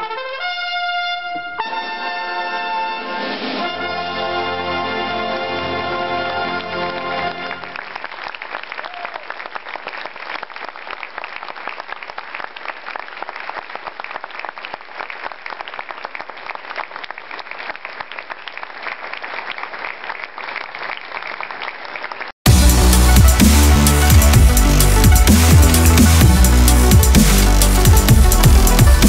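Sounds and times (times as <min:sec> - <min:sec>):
brass band chord: 0:00.0 - 0:07.8, 0:22.5 - 0:29.0
audience applauding: 0:05.7 - 0:29.0.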